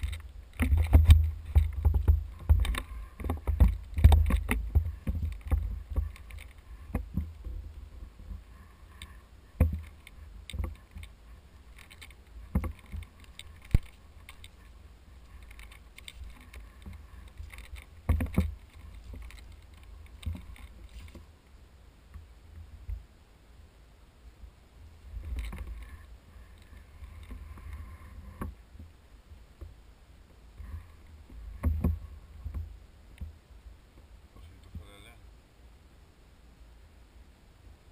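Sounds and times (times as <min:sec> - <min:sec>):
microphone handling noise: 0:00.0 - 0:21.3
low wind rumble: 0:00.0 - 0:37.9.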